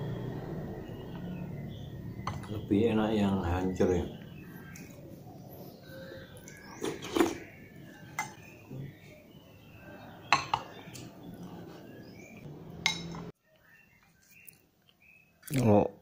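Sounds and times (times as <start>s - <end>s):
spoon clinking against bowl: 12.8s - 13.3s.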